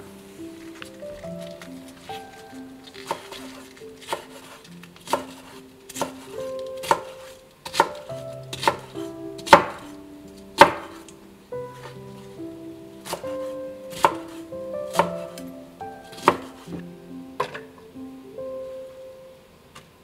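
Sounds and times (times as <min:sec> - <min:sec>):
knife slicing cabbage: 0:02.9 - 0:09.9, 0:16.1 - 0:16.7.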